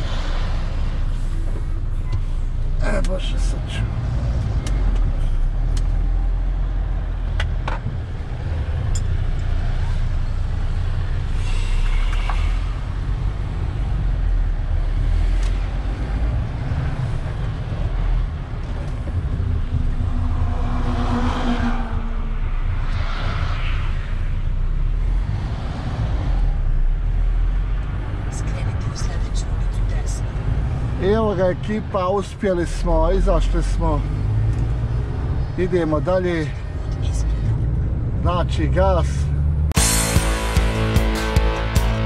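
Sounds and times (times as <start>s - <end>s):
truck diesel engine rumble: 0.0s - 25.4s.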